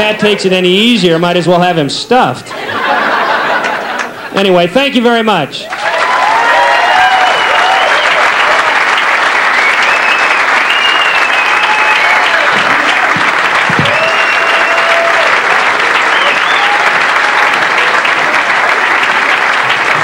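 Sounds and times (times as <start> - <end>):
audience applauding: 3.0 - 4.3, 5.6 - 20.0
whistles and cheers: 5.7 - 8.8, 9.4 - 13.0, 13.7 - 18.0.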